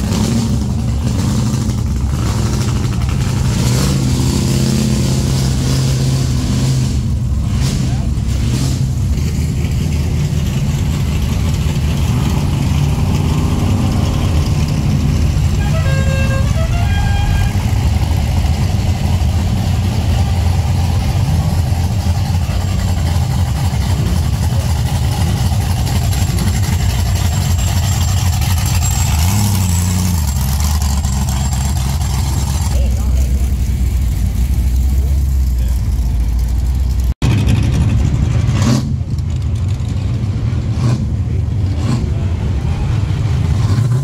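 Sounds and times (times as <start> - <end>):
car engines rolling past: 0.0 - 44.0
engine revving: 0.0 - 44.0
car horn stepped notes: 15.5 - 17.7.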